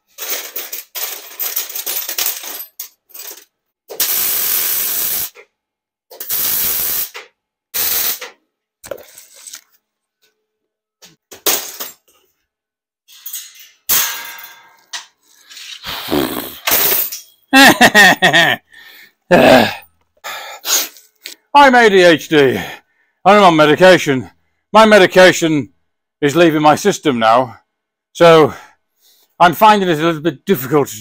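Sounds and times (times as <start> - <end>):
welder crackling hiss: 4.0 - 5.4, 6.2 - 7.2, 7.8 - 8.3.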